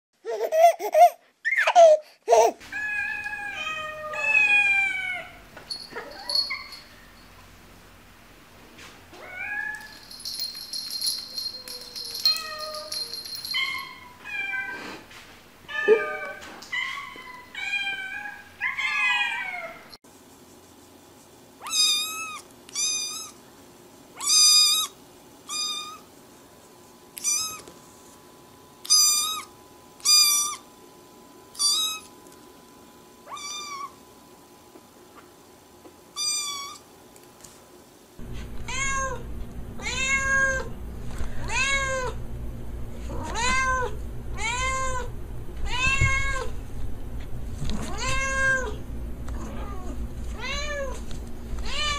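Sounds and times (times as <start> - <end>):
cats meowing: 2.7 - 5.4, 43.1 - 46.5, 47.8 - 51.0.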